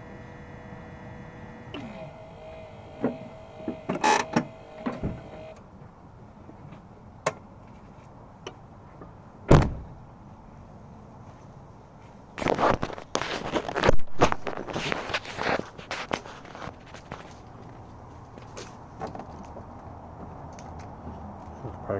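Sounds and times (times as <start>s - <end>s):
engine hum: 0.0s - 6.9s
engine knocks and clunks: 1.7s - 5.6s.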